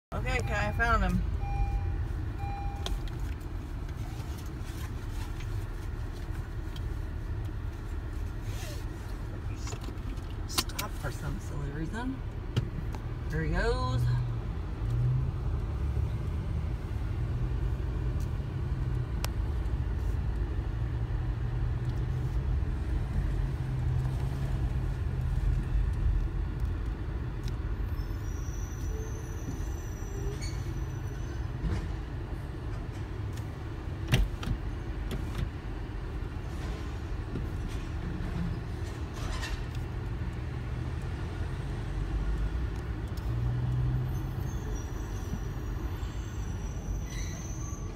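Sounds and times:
car engine: 0.1 - 47.0
faint high squeal: 27.8 - 31.5, 44.0 - 47.9.

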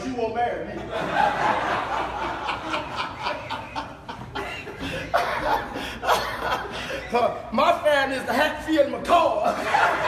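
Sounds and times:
congregation laughing: 0.7 - 7.8, 9.1 - 10.0.

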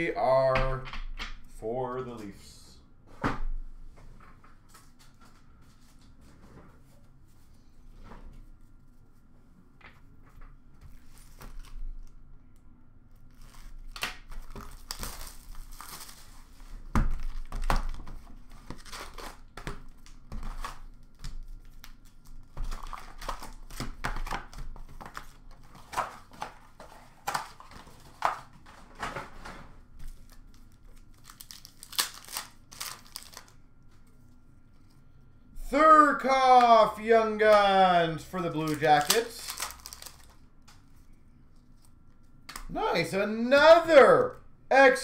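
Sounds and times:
plastic wrap tearing: 13.2 - 16.5, 17.1 - 26.6, 30.2 - 33.6, 38.6 - 40.4
foil packs crinkling: 13.2 - 29.0, 30.0 - 33.6, 38.3 - 41.0
cardboard tearing: 31.2 - 33.5, 38.7 - 40.3.

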